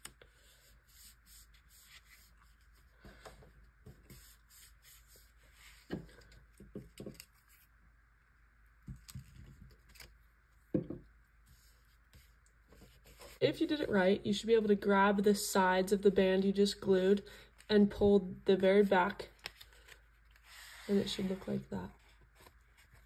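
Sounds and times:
paper scraping and rubbing: 0:00.3 - 0:03.0, 0:04.1 - 0:05.9, 0:19.5 - 0:23.0.

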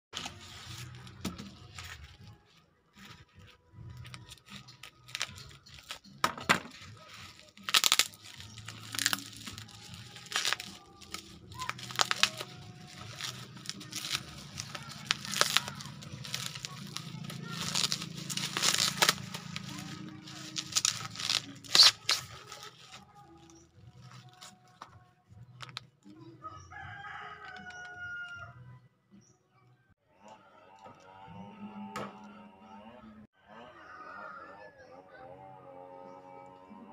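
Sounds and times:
sticker film crinkling: 0:00.2 - 0:25.0
rooster crowing: 0:26.4 - 0:28.6, 0:33.4 - 0:36.2.

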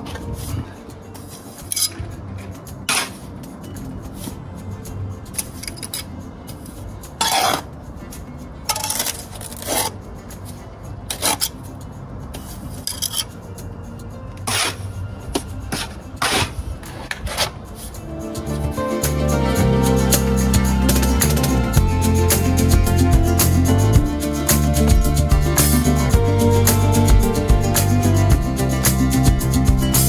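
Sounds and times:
trowel scraping mortar and bricks: 0:00.1 - 0:03.4, 0:05.3 - 0:07.7, 0:08.7 - 0:11.6, 0:12.3 - 0:13.4, 0:14.4 - 0:18.7.

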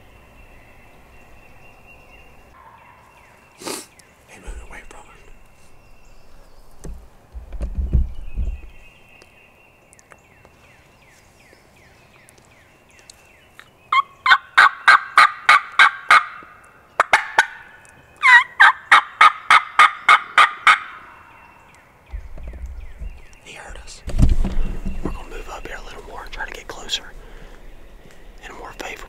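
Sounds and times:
turkey gobbling: 0:02.6 - 0:03.0, 0:13.9 - 0:21.4.

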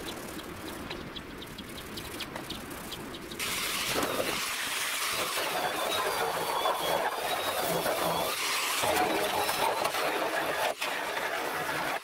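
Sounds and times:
angle grinder grinding metal: 0:03.4 - 0:11.9.

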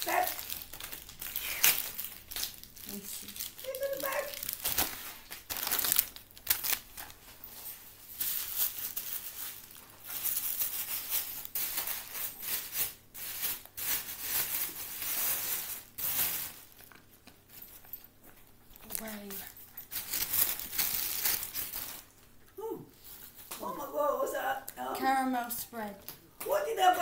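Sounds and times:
wrapping paper tearing and rustling: 0:00.0 - 0:17.6, 0:18.7 - 0:22.2.

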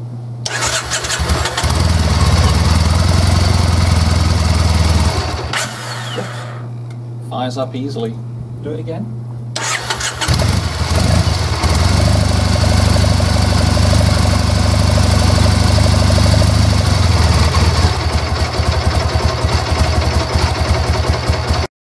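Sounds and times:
motorcycle engine starting and idling: 0:00.4 - 0:06.6, 0:09.6 - 0:21.7.

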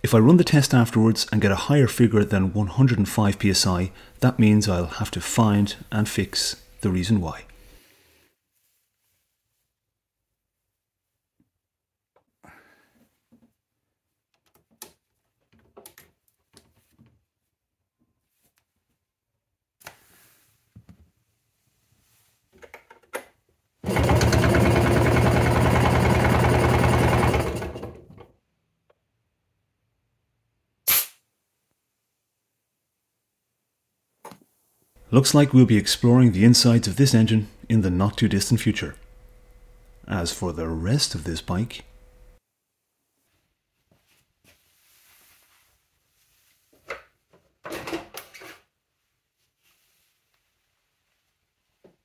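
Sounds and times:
engine cranking on starter: 0:23.8 - 0:28.3
faint shuffling: 0:43.0 - 0:46.8, 0:49.3 - 0:51.8.

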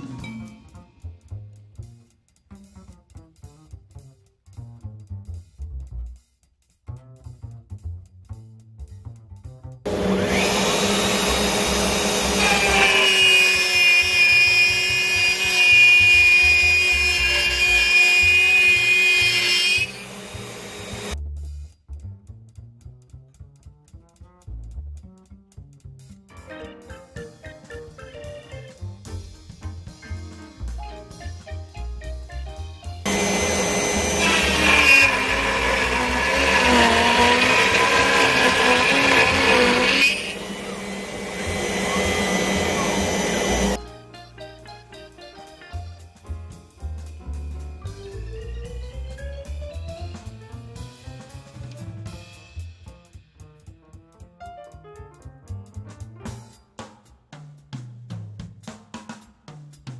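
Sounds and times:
light jazzy music: 0:00.0 - 0:19.9, 0:21.1 - 0:40.3, 0:40.9 - 0:59.9
router cutting wood: 0:09.9 - 0:21.2, 0:33.1 - 0:43.8.

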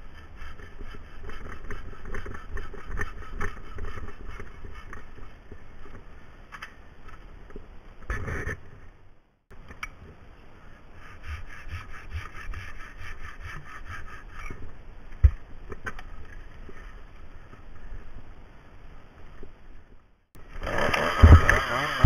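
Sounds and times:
hand saw cutting branch: 0:00.0 - 0:05.3, 0:20.6 - 0:22.0.

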